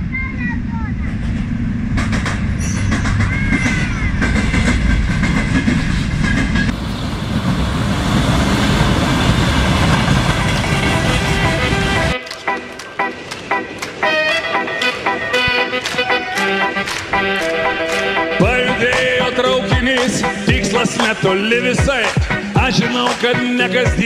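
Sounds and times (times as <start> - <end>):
diesel locomotive rumble: 0.0 - 21.8
train wheels clicking over rail joints: 1.1 - 14.2.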